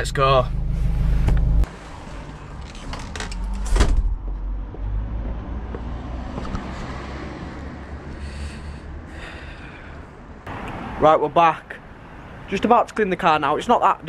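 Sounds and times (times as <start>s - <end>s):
low outdoor rumble: 0.0s - 4.9s.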